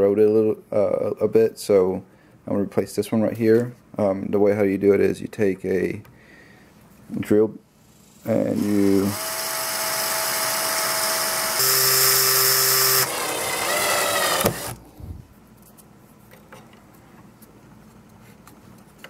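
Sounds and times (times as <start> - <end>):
electric drill whining: 8.5 - 14.8
drill switch click: 13.7 - 14.8.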